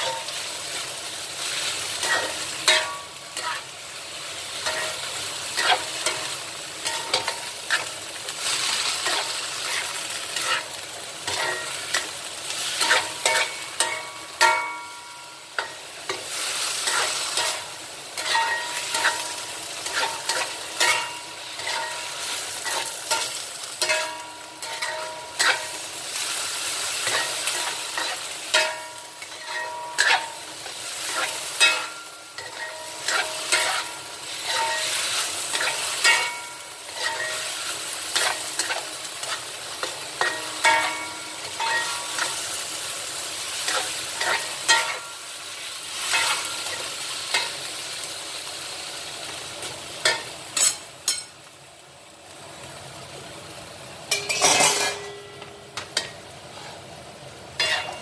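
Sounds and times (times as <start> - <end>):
greens sizzling in a wok: 0.0 - 58.0
spatula knocking and scraping pan: 18.2 - 25.8, 27.0 - 37.4.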